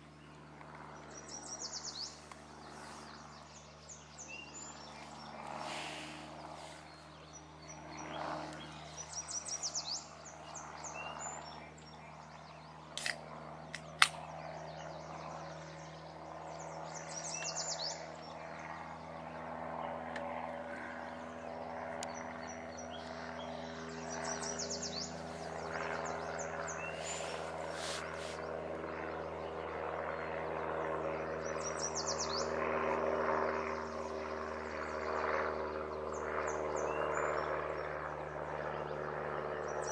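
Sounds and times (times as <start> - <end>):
steady low hum: 0.0 - 39.9
sharp clicks: 13.0 - 14.2
songbird trilling: 26.0 - 28.3.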